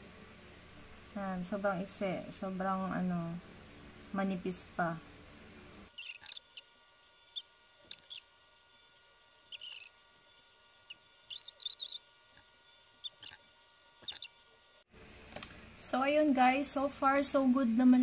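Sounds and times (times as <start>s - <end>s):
mascara wand ticks and squeaks: 6.0s - 8.3s, 9.5s - 10.0s, 10.9s - 12.0s, 13.0s - 14.4s.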